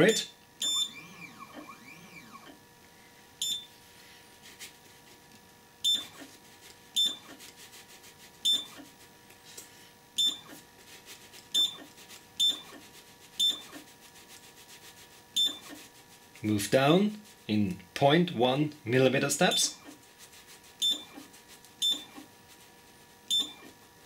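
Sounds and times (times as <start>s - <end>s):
faint motor buzz: 0.0s - 24.0s
short high beeps: 0.6s - 1.0s.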